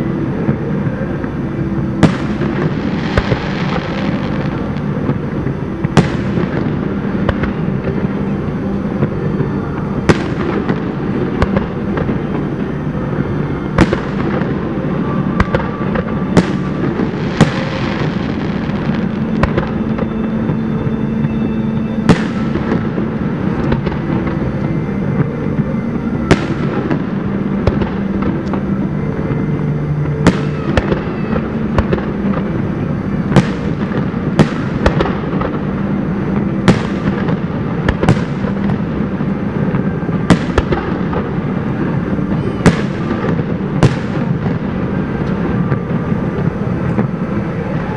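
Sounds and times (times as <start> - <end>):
background rumble: 0.0 - 47.9
firework booms with echo: 0.3 - 8.3, 8.9 - 21.4, 22.0 - 24.4, 25.0 - 29.4, 30.0 - 47.9.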